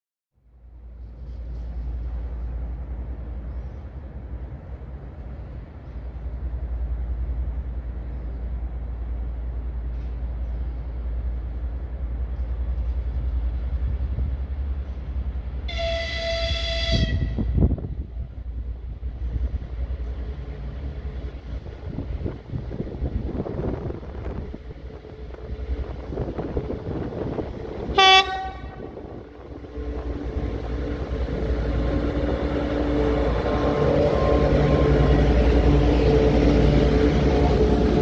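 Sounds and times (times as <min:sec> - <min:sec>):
locomotive whistle: 0:15.7 - 0:17.6, 0:28.0 - 0:29.0.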